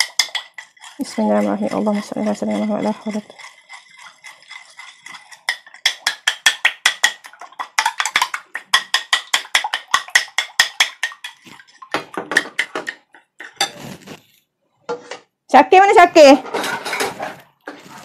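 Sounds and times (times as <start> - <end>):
metal spoon beating eggs in glass bowl: 0.0 - 13.8.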